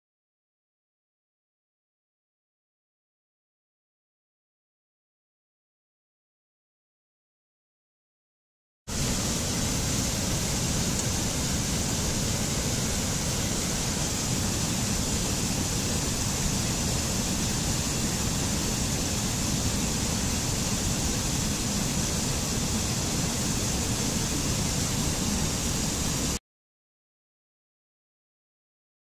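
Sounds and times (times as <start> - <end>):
mountain stream rushing over rocks: 8.9 - 26.4.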